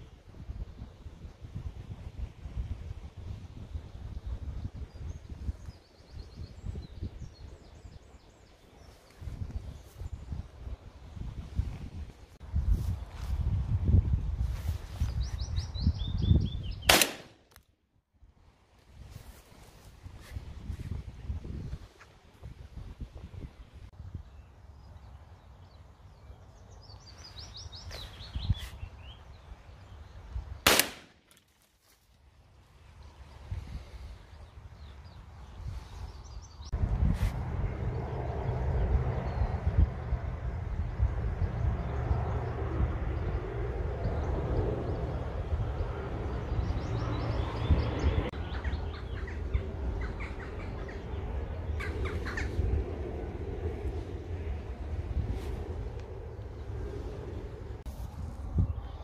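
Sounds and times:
wind on microphone: 0.0 - 17.4, 18.9 - 24.9, 26.2 - 31.0, 32.8 - 59.0
shotgun shot: 16.9 - 17.4, 30.6 - 31.2
steady low rumble: 36.6 - 59.0
bird chirping: 46.5 - 52.5.

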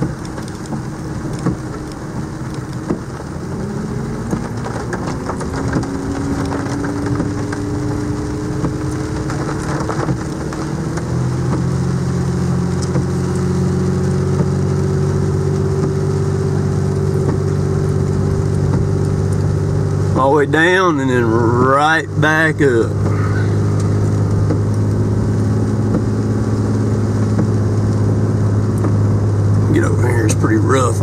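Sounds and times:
heavy rain on roof: 0.0 - 31.0
truck engine pulling uphill: 0.0 - 31.0
windshield wipers sweeping: 0.0 - 31.0.

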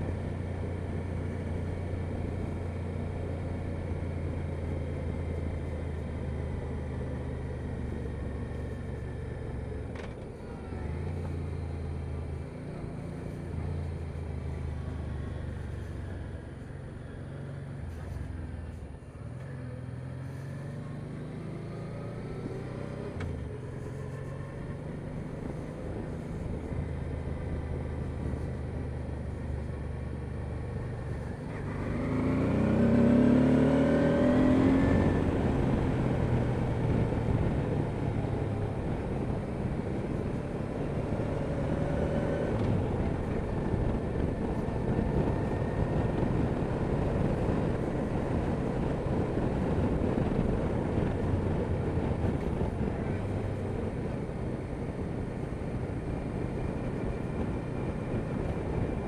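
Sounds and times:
motorcycle engine running: 0.0 - 59.0
wind and road rush: 0.0 - 59.0.

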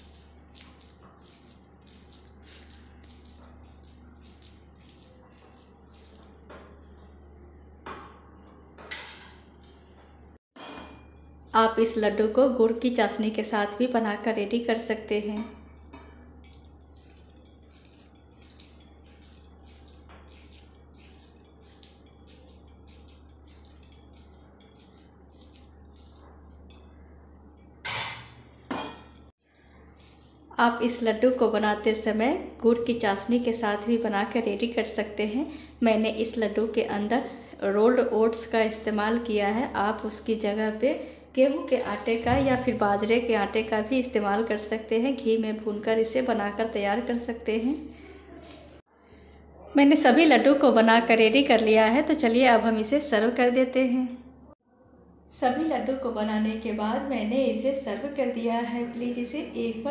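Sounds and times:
crumbly mixture rustling and crackling: 0.0 - 7.0, 16.5 - 27.0, 29.1 - 37.0.

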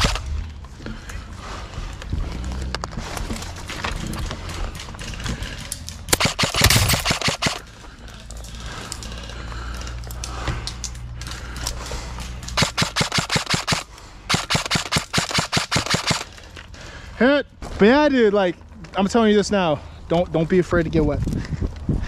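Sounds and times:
airsoft guns firing: 0.0 - 0.3, 6.1 - 7.6, 12.5 - 16.4.

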